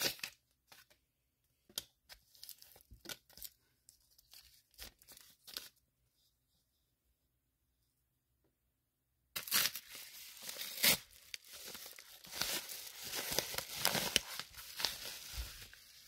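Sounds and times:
padded mailer tearing: 9.4 - 15.3.

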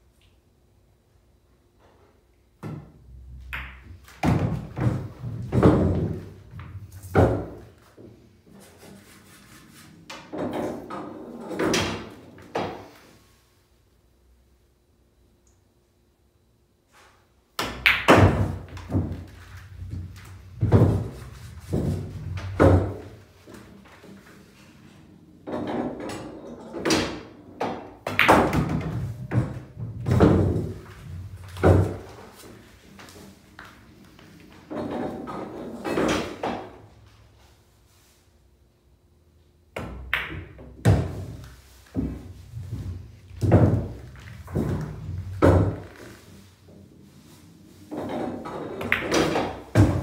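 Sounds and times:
pool balls clacking: 2.6 - 7.8, 10.1 - 13.0, 17.6 - 36.9, 39.8 - 50.0
pool cue striking ball: 3.4 - 7.7, 17.6 - 23.2, 25.5 - 32.2, 39.8 - 46.0, 47.9 - 50.0.

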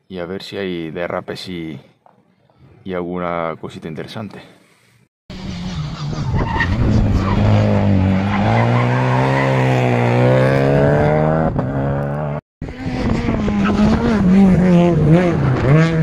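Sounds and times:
rally car engine passing: 5.4 - 16.0.

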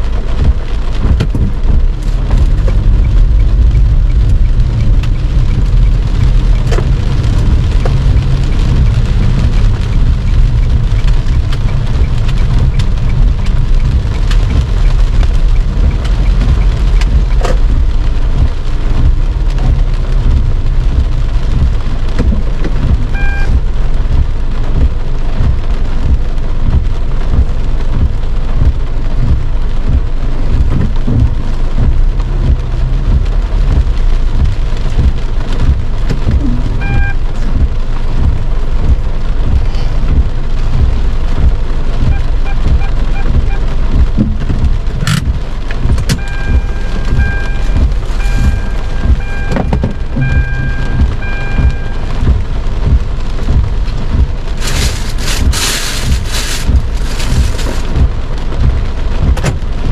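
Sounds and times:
heavy rain on car roof: 0.0 - 59.9
electronic beeps: 23.1 - 23.6, 36.8 - 37.2, 46.2 - 52.1.

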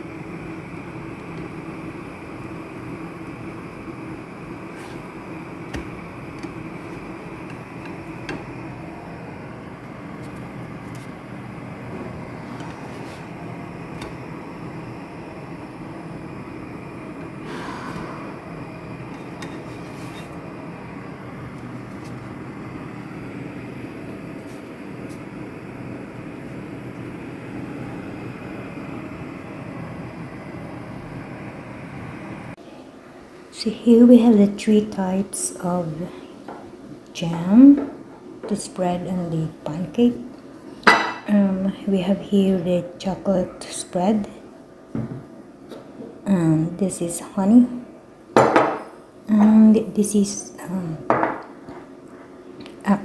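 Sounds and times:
gas hob rushing: 0.0 - 32.6
machine humming: 0.0 - 37.2.

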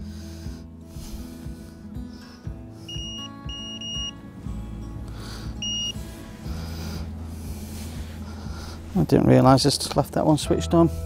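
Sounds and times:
background music: 0.0 - 11.0
bite alarm beeping: 2.9 - 4.2, 5.6 - 6.0.

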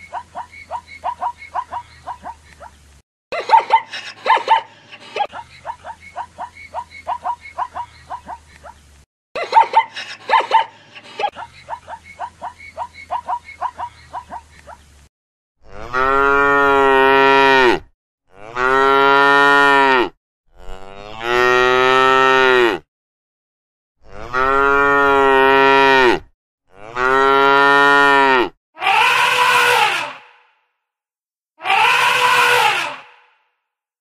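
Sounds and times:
zebra barks: 0.0 - 2.7, 3.4 - 8.8, 9.6 - 14.8.

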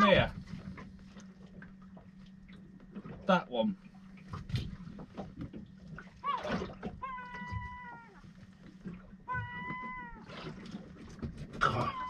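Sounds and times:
gull calling: 6.2 - 8.4, 9.2 - 10.4, 11.6 - 12.0.

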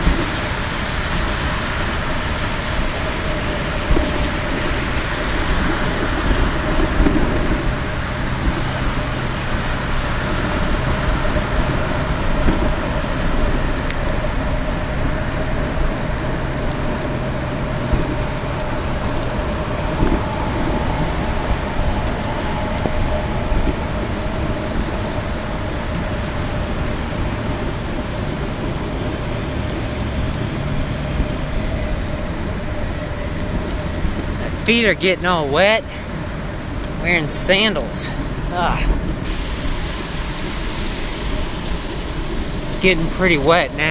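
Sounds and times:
bicycle tyres hissing on wet path: 0.0 - 43.9
highway traffic: 0.0 - 43.9.

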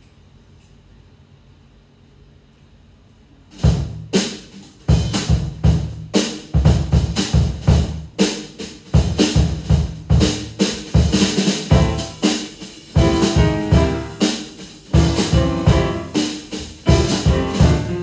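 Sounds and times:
jazz drum kit playing: 3.5 - 18.0
piano notes: 11.7 - 12.4, 13.0 - 18.0.

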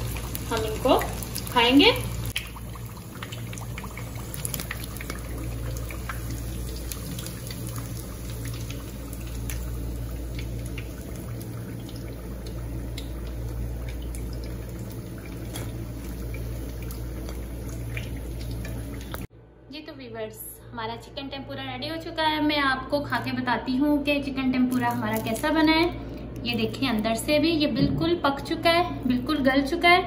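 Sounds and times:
oil sizzling with pops: 0.0 - 19.3, 24.6 - 25.8
low steady hum: 0.0 - 30.0.

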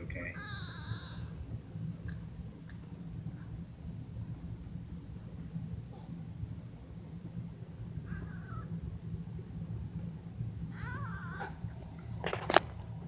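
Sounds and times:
steady low hum: 0.0 - 13.0
kittens mewing: 10.7 - 11.7.

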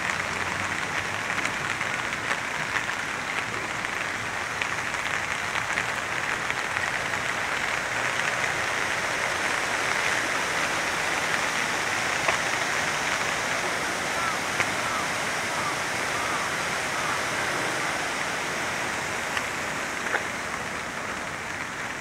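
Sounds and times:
raindrop ticks: 0.0 - 22.0
running water rushing: 0.0 - 22.0
steady rain falling: 0.0 - 22.0.

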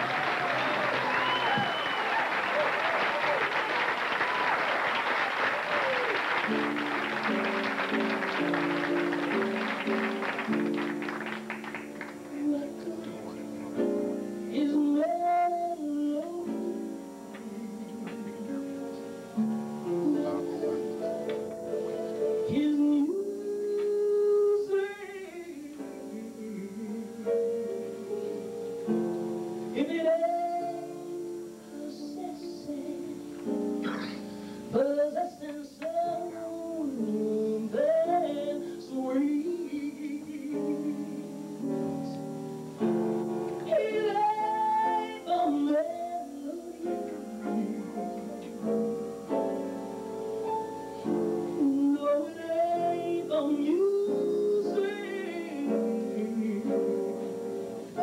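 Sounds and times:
instrumental accompaniment: 5.9 - 58.0
woman singing with vibrato: 12.2 - 13.4, 14.5 - 18.9, 22.4 - 27.4, 29.7 - 33.3, 34.7 - 42.1, 43.6 - 48.7, 51.4 - 57.3.

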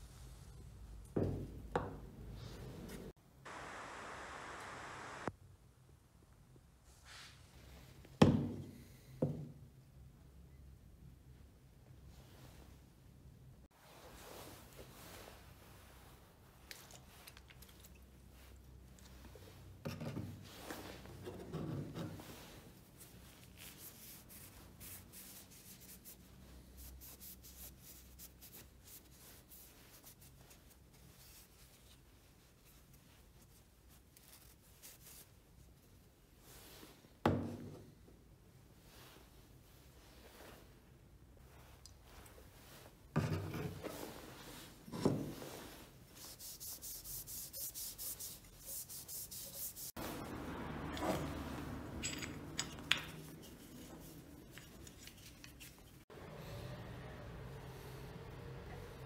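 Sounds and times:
cloth wiping metal: 42.4 - 56.0.

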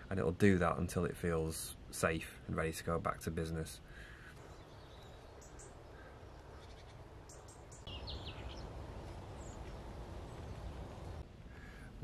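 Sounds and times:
wind noise: 7.0 - 12.0.

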